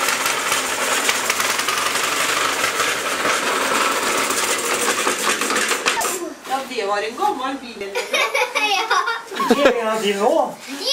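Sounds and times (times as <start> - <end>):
small engine clattering: 0.0 - 6.2.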